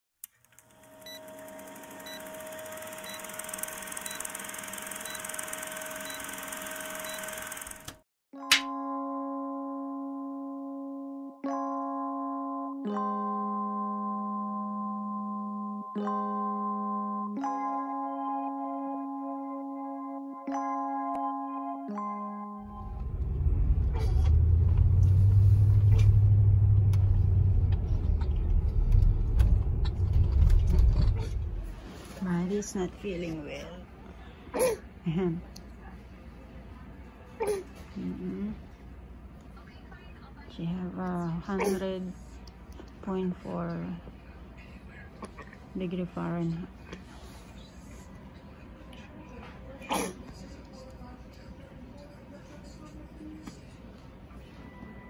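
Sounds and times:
film projector rattle: 0:00.4 - 0:08.0
car driving rumble from inside: 0:22.8 - 0:31.7.

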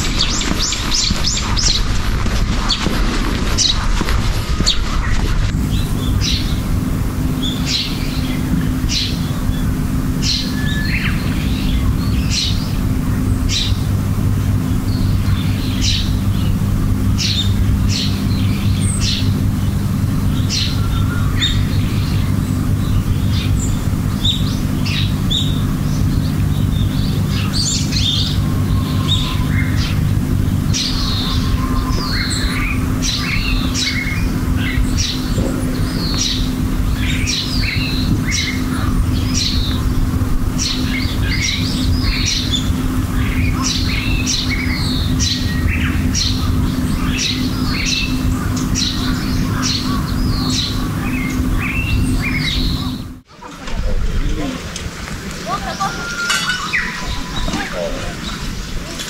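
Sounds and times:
birds chirping: 0:00.0 - 0:59.0
steady low drone: 0:00.0 - 0:59.0.

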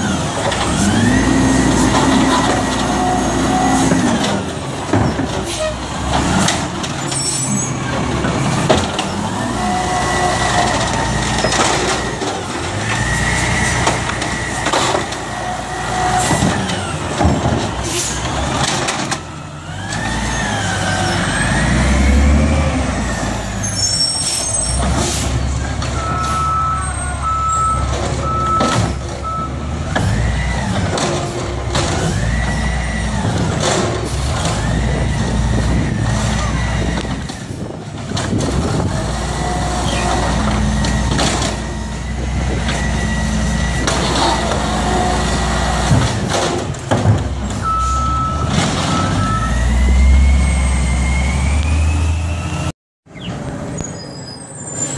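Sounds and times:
garbage truck engine revving: 0:00.0 - 0:52.7.

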